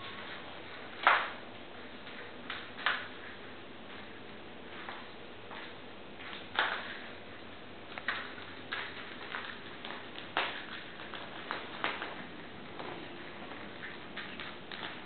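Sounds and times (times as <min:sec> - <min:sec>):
paws tapping on tiled floor: 0:00.0 - 0:07.2, 0:07.8 - 0:15.0.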